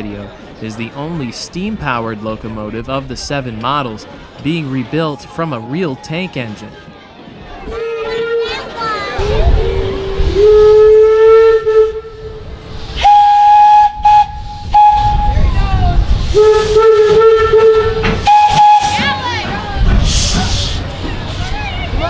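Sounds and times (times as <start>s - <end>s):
steam whistle blasts: 9.2s - 12.4s, 13.0s - 15.4s, 16.3s - 19.2s
steam hissing: 12.4s - 15.3s, 16.1s - 19.2s, 19.8s - 21.6s.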